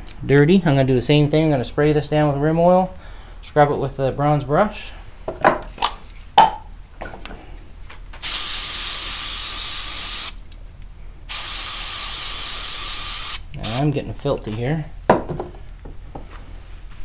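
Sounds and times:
aerosol can spraying: 8.2s - 10.4s, 11.3s - 13.8s.

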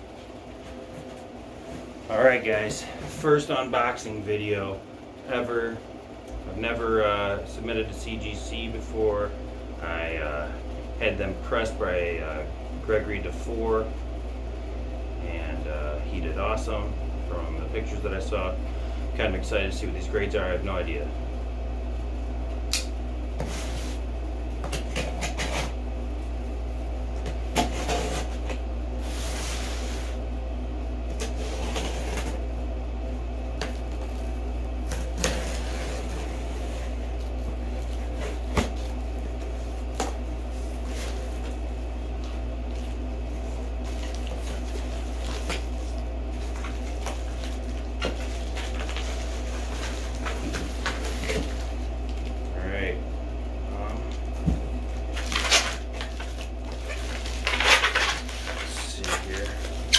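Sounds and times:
steady low hum: 0.0s - 59.9s
cardboard flaps scraping and rustling: 31.1s - 32.5s, 34.9s - 41.6s
packing tape slitting: 55.1s - 59.9s.

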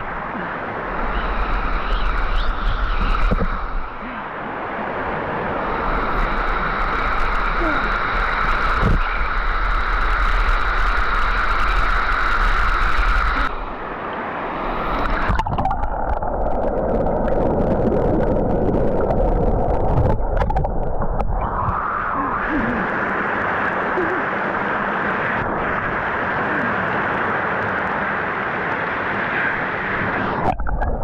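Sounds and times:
waterfall pouring into pool: 6.1s - 13.5s.

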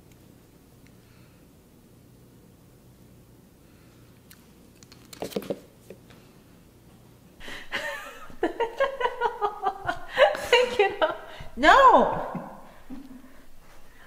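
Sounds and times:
person exclaiming and laughing: 8.6s - 13.2s.

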